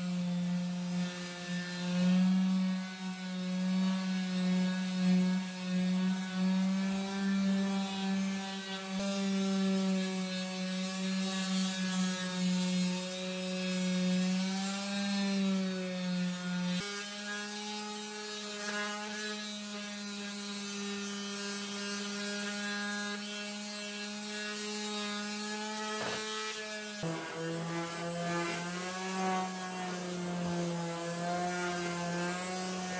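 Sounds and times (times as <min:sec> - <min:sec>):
power tool motor running: 0:20.7 - 0:32.9.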